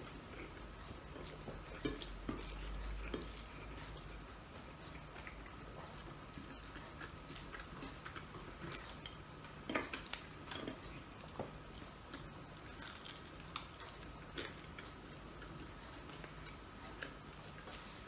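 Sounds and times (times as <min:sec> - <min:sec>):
faint steady hum: 0:00.0 - 0:18.0
soft chewing: 0:00.0 - 0:18.0.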